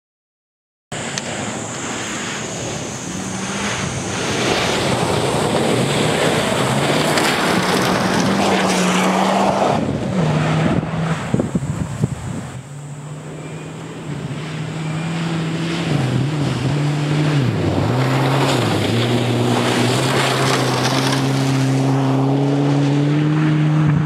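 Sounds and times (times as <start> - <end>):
rally car engine revving: 1.1 - 24.0
tyres on loose gravel: 2.6 - 13.2, 15.9 - 22.0.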